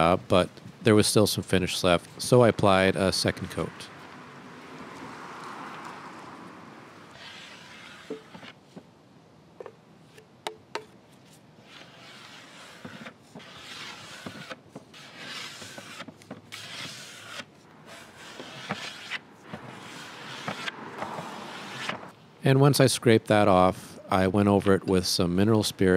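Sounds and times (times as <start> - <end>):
scraper strokes on wood: 7.1 - 8.6, 11.3 - 22.1.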